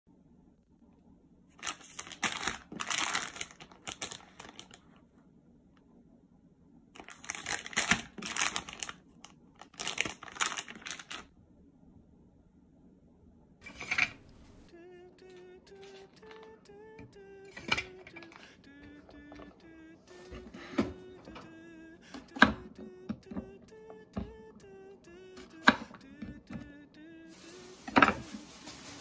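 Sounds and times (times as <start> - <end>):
plastic food packaging crinkling: 1.6 - 5.0, 7.0 - 11.3, 15.8 - 16.5, 27.3 - 29.0.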